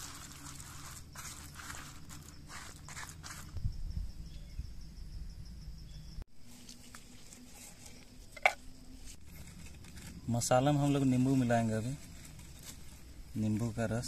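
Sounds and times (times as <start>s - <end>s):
hands mixing wet paste: 0.0s - 3.5s
high insect call: 0.0s - 14.0s.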